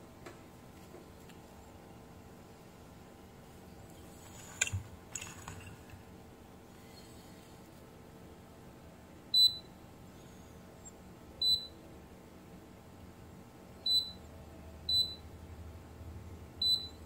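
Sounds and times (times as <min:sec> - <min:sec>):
multimeter beeping: 0:13.9 - 0:14.2, 0:14.9 - 0:15.2, 0:16.6 - 0:17.0.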